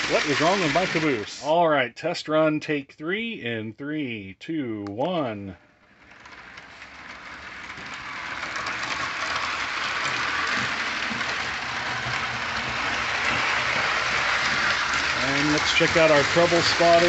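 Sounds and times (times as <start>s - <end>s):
toy train wheels clattering on rails: 0.0s - 1.5s, 5.9s - 17.0s.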